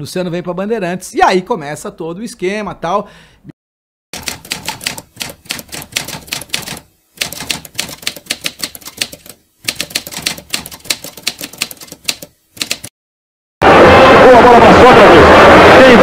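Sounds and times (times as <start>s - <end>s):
typewriter keys clacking: 4.2s - 12.9s.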